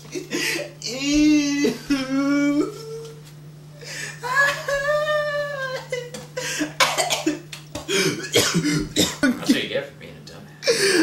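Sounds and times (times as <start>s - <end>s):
man wailing in pain: 0.3s - 3.1s, 4.0s - 6.7s.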